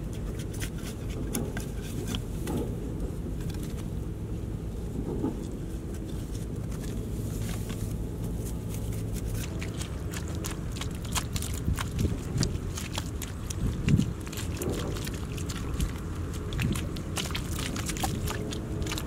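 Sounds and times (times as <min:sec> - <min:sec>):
soil clods crunching: 0:05.4 - 0:19.0.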